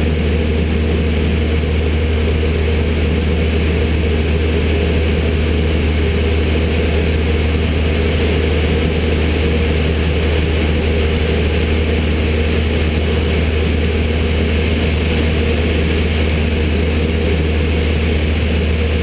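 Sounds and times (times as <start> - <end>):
aircraft engine and propeller drone: 0.0 - 19.0.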